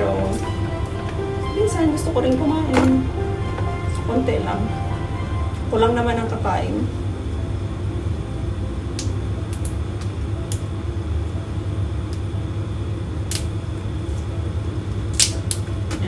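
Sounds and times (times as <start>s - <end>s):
appliance fan humming: 0.0s - 16.0s
string beans snapping clicks: 13.2s - 13.5s, 15.1s - 15.7s.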